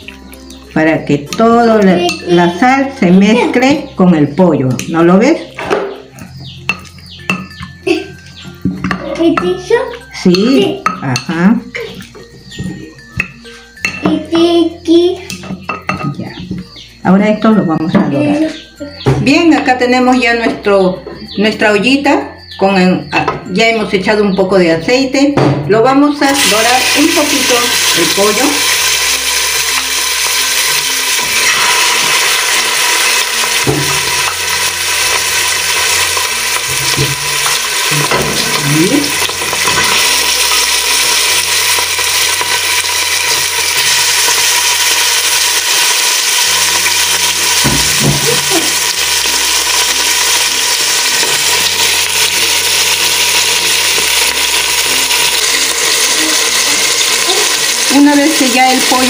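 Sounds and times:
chicken sizzling in hot oil: 0:26.2 - 0:59.0.

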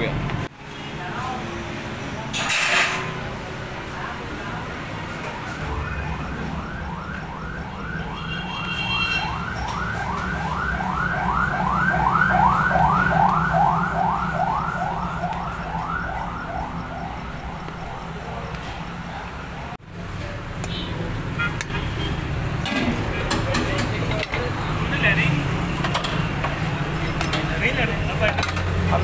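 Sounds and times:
low traffic hum: 0:00.0 - 0:29.0
siren yelping: 0:05.5 - 0:18.4.

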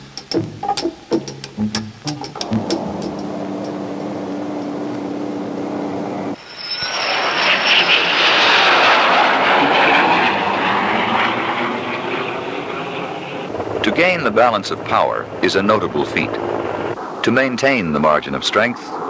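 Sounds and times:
machine hum with held tone: 0:00.0 - 0:07.3
jet fighter passing: 0:02.3 - 0:19.0.

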